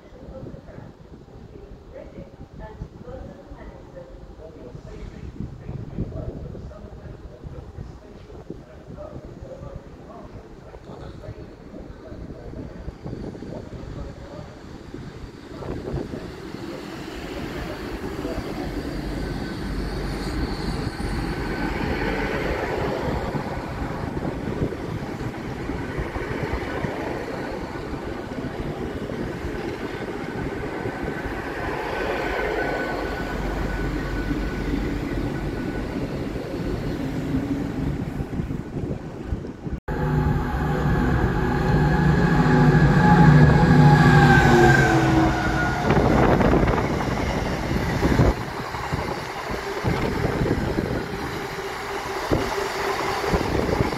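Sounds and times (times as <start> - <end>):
faint train whine: 0.0 - 53.9
passenger train rumbling: 0.0 - 53.9
locomotive engine passing: 16.2 - 39.0, 39.8 - 53.9.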